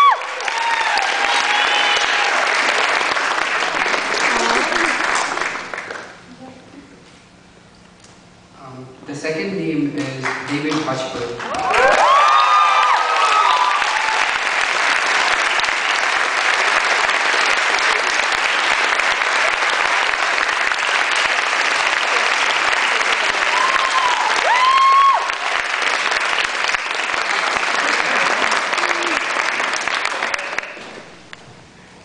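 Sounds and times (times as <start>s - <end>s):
audience applauding: 0.0s - 6.3s, 11.4s - 31.4s
short whoops: 23.5s - 25.4s.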